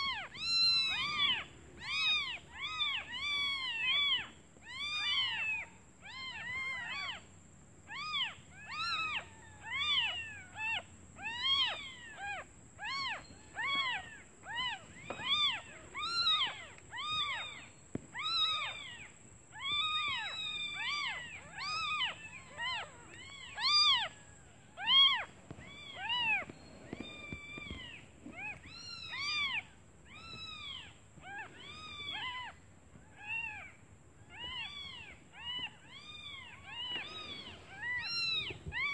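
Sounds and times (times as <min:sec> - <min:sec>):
kittens mewing: 0:07.9 - 0:24.2, 0:34.3 - 0:38.9.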